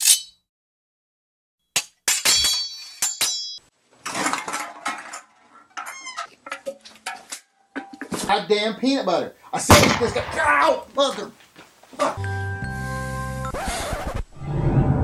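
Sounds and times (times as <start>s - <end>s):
glass breaking: 2.0s - 4.8s.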